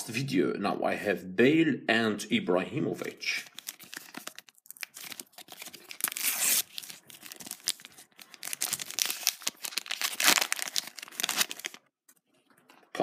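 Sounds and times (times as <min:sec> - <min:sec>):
foil packet tearing and crinkling: 0:03.4 - 0:11.9.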